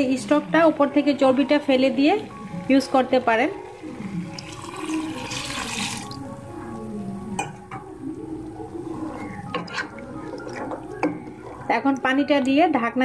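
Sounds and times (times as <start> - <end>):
water pouring into pot: 3.7 - 6.8, 8.9 - 11.7
spatula stirring curry: 7.8 - 11.7.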